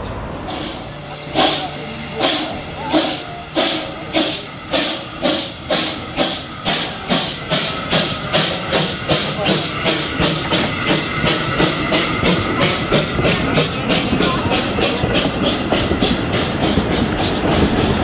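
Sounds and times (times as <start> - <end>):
steam hissing from cylinders: 0.3 - 18.0
steam locomotive exhaust chuffs: 0.3 - 18.0.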